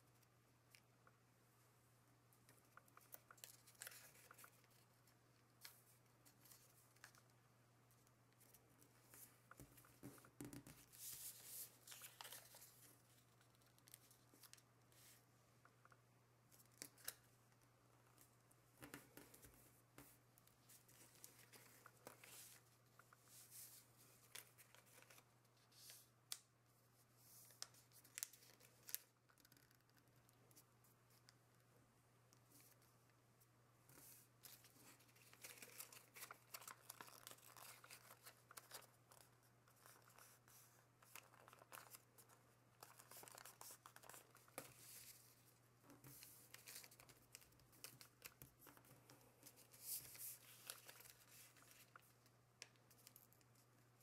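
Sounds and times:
paper crinkling while folded: 0:02.4 - 0:07.4, 0:08.3 - 0:15.2, 0:19.3 - 0:26.1, 0:27.2 - 0:31.3, 0:34.0 - 0:54.0.

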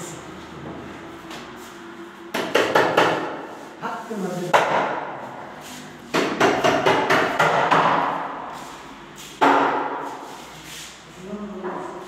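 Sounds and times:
sharp knocks: 0:02.3 - 0:03.4, 0:04.5 - 0:05.2, 0:06.1 - 0:08.4, 0:09.4 - 0:10.2.

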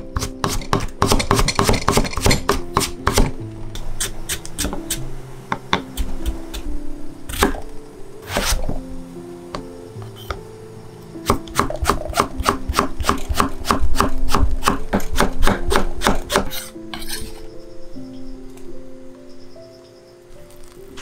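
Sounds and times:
soft background music: 0:00.0 - 0:21.0
knife chopping on wooden board: 0:00.2 - 0:03.3, 0:11.3 - 0:17.3.

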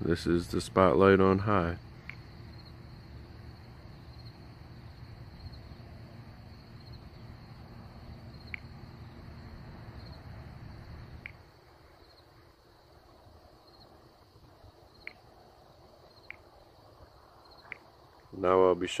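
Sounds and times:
crickets chirping: 0:00.0 - 0:19.0
sharp ticks: 0:02.0 - 0:02.7, 0:08.4 - 0:08.8, 0:11.2 - 0:11.4, 0:15.0 - 0:15.3, 0:16.2 - 0:16.5.

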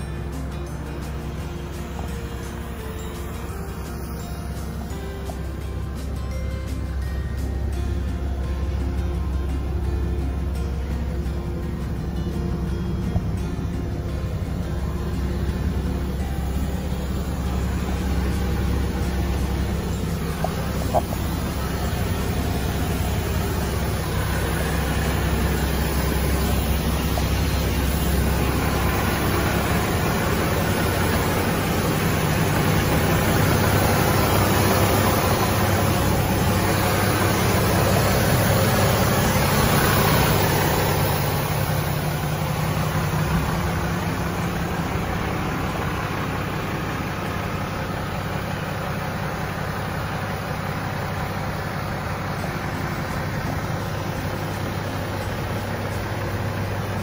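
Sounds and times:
truck diesel engine idling: 0:00.0 - 0:57.0.

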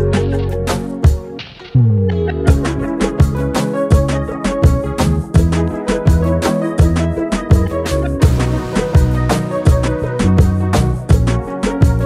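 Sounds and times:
background music with steady beat: 0:00.0 - 0:12.0
drum hits: 0:08.2 - 0:10.6.

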